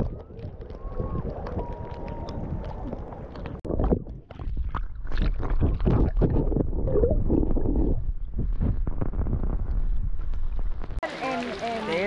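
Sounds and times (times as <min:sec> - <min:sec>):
water sloshing and splashing: 0:00.0 - 0:09.3, 0:10.9 - 0:12.0
muffled underwater rumble: 0:00.0 - 0:11.0.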